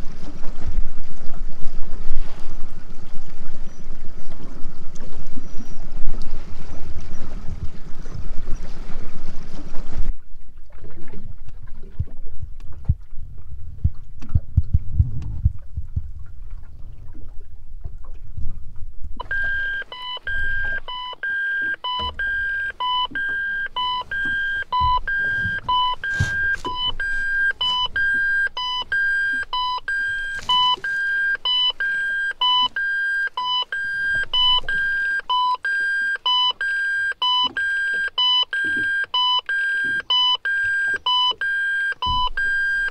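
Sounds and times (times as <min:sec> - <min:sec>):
low wind on microphone: 0:00.0 - 0:19.4
boat rumble: 0:00.0 - 0:42.9
electronic alarm beeping: 0:19.2 - 0:42.9.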